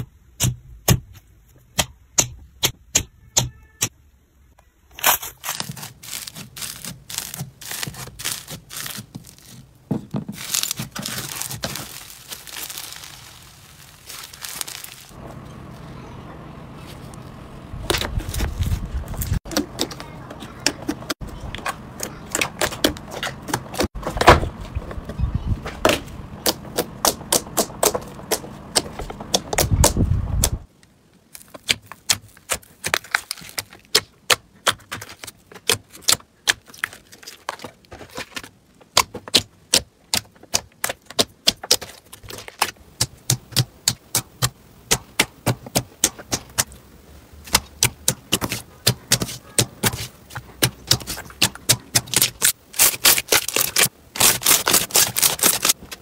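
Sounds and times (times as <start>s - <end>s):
slime crackling and popping: 5.0s - 9.6s, 10.4s - 15.2s, 47.4s - 56.0s
low rumble: 14.4s - 19.4s.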